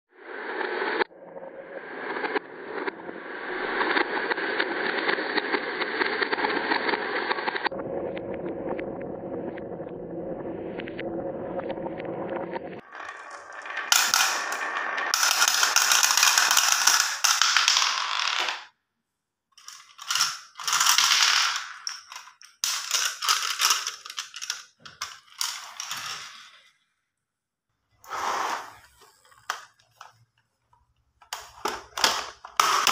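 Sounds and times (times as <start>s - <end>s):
marbles clattering in plastic toy: 12.8s - 18.7s, 19.6s - 26.6s, 31.2s - 32.9s
marbles clinking into glass dish: 12.8s - 18.7s, 19.6s - 26.4s
marbles rolling down wooden track: 12.8s - 18.7s, 19.6s - 26.7s, 31.2s - 32.9s.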